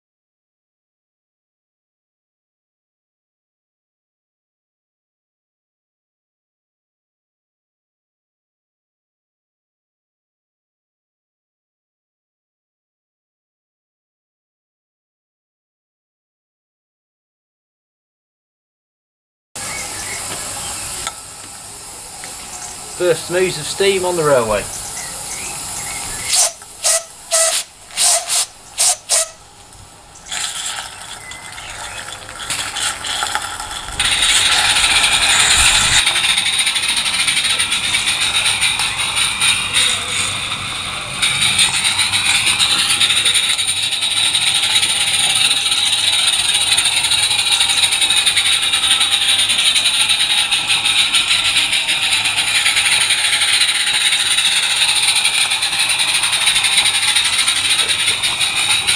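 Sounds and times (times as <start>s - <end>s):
short sharp steam bursts: 19.6s - 29.5s, 33.9s - 58.9s
model steam locomotive chuffing: 19.6s - 58.9s.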